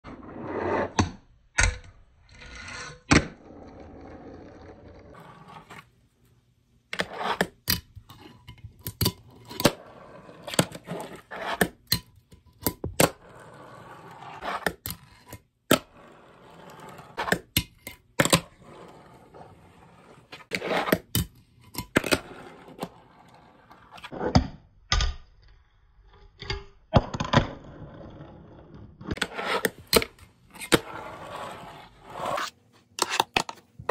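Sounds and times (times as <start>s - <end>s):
fingerboard grinding on ledge: 29.1s - 30.0s.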